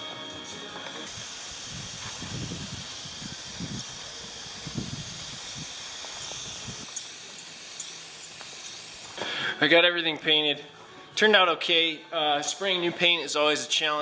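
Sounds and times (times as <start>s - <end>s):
paint spray gun hissing: 0.9s - 9.6s.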